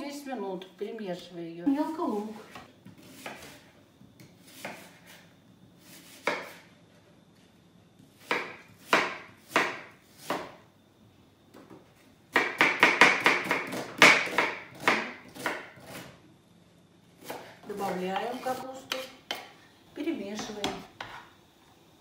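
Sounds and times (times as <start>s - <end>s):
knife chopping on wooden board: 6.0s - 6.6s, 8.2s - 10.6s, 12.3s - 16.1s.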